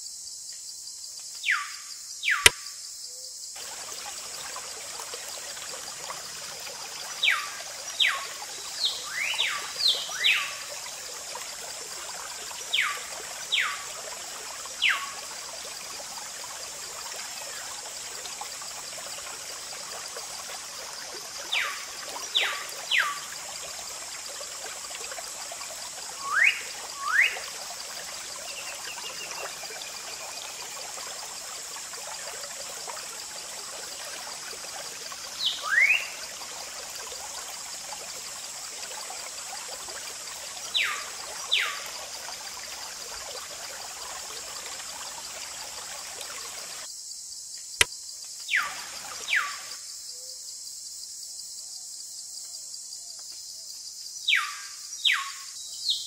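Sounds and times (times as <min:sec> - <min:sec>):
water trickling and pouring: 0:03.6 - 0:46.9, 0:48.6 - 0:49.6.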